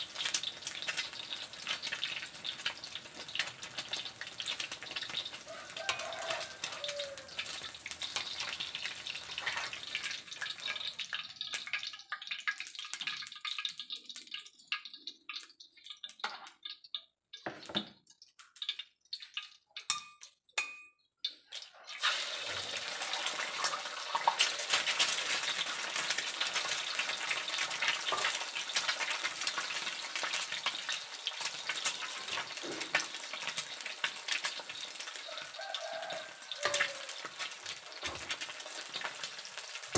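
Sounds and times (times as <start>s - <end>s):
eggs sizzling in hot oil: 0.0s - 39.9s
oil popping and clicking: 9.4s - 20.6s.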